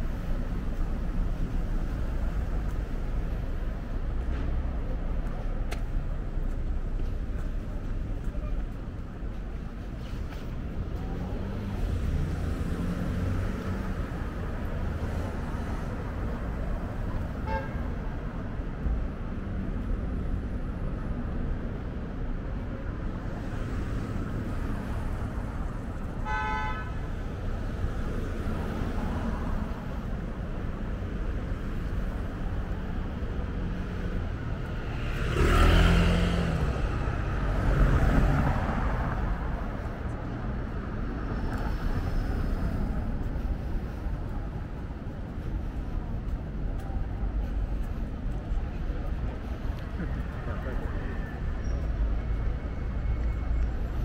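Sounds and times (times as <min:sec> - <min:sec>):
city street traffic: 0:00.0 - 0:54.0
vehicles passing close by: 0:00.0 - 0:54.0
car horn toot: 0:17.4 - 0:17.8, 0:26.2 - 0:27.0.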